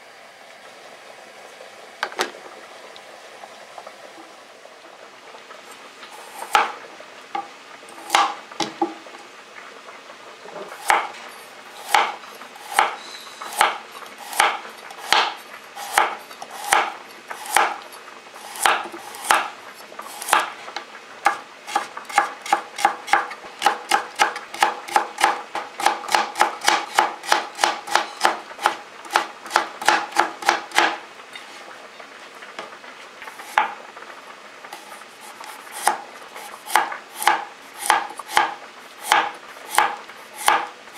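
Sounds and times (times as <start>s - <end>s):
knife chopping on cutting board: 6.4s - 6.8s, 7.4s - 9.0s, 10.8s - 11.2s, 11.9s - 17.8s, 18.5s - 19.5s, 20.1s - 20.5s, 21.2s - 31.0s, 33.5s - 33.8s, 34.8s - 40.7s.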